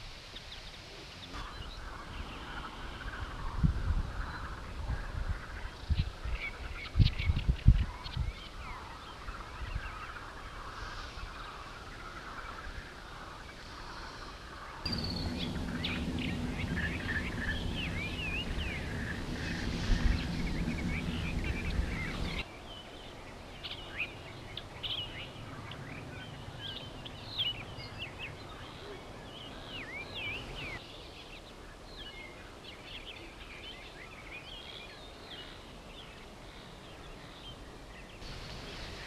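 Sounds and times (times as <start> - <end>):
small birds chirping: 0.0 - 39.0
steady low hum: 14.9 - 22.4.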